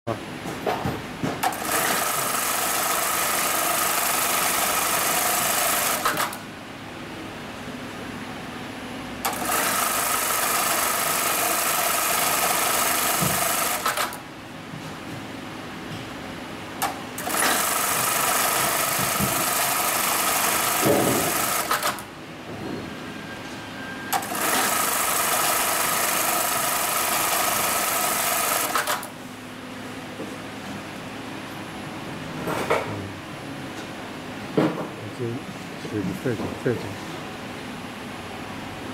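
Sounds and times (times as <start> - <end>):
sewing machine clicks: 1.4 - 6.4, 9.3 - 14.2, 16.8 - 22.0, 24.2 - 29.1
sewing machine stitching: 1.4 - 6.4, 9.2 - 14.2, 16.8 - 22.0, 24.1 - 29.1.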